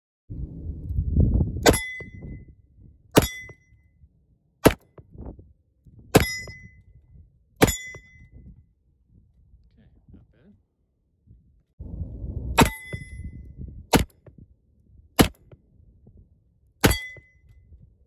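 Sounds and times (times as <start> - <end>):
low rumble: 0.3 - 18.0
steel plate target ringing: 1.6 - 2.4, 3.2 - 3.8, 6.2 - 6.8, 7.6 - 8.3, 12.6 - 13.4, 16.8 - 17.5.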